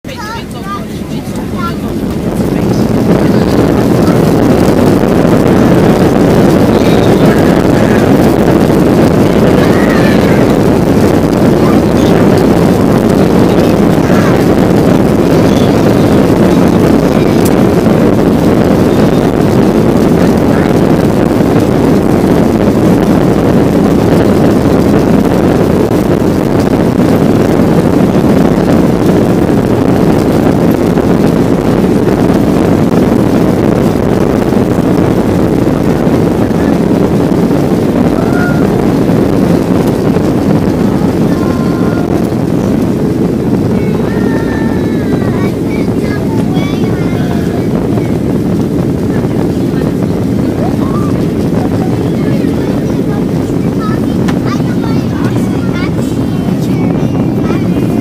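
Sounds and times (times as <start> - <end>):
jet engines and rushing air: 0.0 - 58.0.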